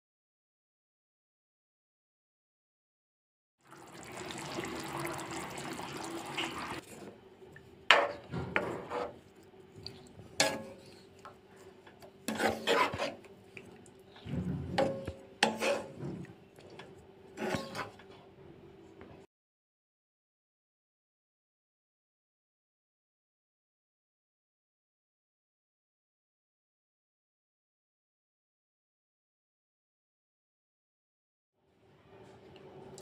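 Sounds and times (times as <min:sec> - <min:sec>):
gravy bubbling in pan: 0:03.6 - 0:06.9
spatula scraping pan: 0:07.9 - 0:13.4, 0:14.2 - 0:18.2.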